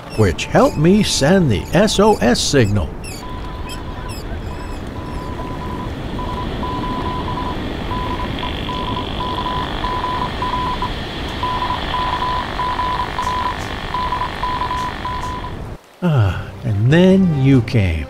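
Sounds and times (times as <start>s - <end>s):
steady rushing noise: 0.0s - 13.9s
morse code beeps: 0.0s - 15.6s.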